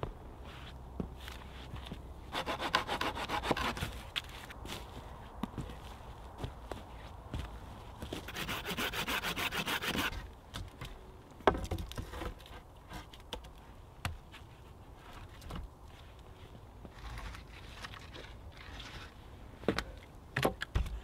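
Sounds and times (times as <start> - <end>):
saw cutting through wood: 2.3 - 3.8, 8.3 - 10.2.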